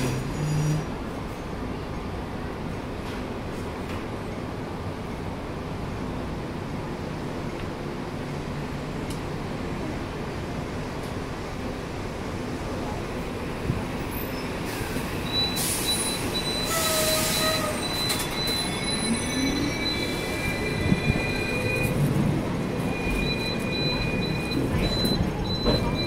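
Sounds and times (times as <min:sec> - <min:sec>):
tram wheels squealing on rails: 0:00.0 - 0:01.7, 0:13.8 - 0:26.0
rumble of moving tram: 0:00.0 - 0:26.0.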